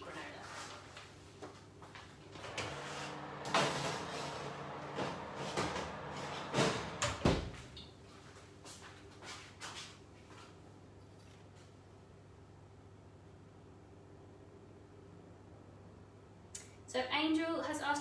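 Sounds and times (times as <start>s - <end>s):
oven door shutting: 2.4s - 7.8s.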